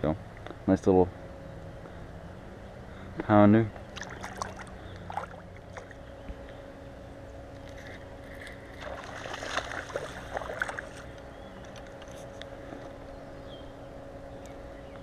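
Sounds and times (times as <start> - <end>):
fish splashing in water: 3.8 - 6.0, 7.8 - 11.9.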